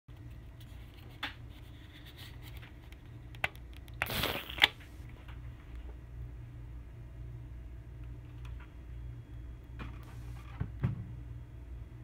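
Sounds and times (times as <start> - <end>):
low steady hum: 0.1 - 12.0.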